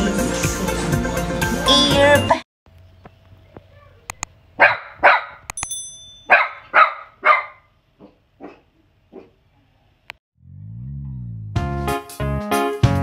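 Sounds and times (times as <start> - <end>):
dog barking: 4.6 - 5.5, 6.3 - 9.5
bell-like ding: 5.6 - 6.3.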